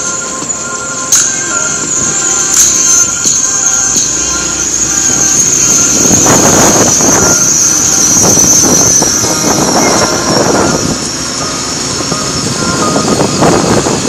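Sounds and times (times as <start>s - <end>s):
wind buffeting microphone: 3.1s - 14.0s.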